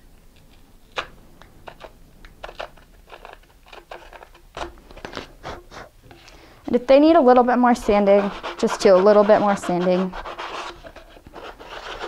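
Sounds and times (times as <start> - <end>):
drill bit scraping cardboard: 7.7 - 12.0.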